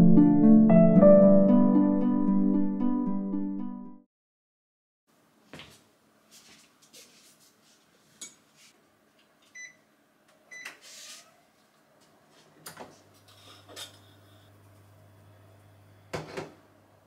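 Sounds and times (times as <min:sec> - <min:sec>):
cooktop touch controls beeping: 0:09.6 - 0:09.8, 0:10.5 - 0:10.8
kitchenware clicks and knocks: 0:16.2 - 0:16.6.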